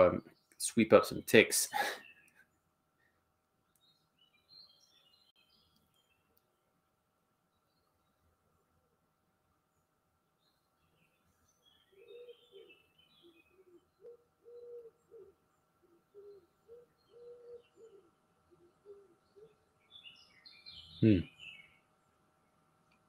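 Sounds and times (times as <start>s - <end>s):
faint steady hum: 0.0s - 23.0s
small birds chirping: 0.0s - 23.0s
pigeon cooing: 11.9s - 19.6s.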